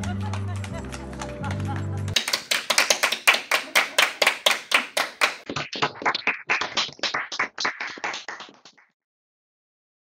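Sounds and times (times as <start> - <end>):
people clapping: 2.1 - 9.0
thin group clapping over call: 2.2 - 8.9.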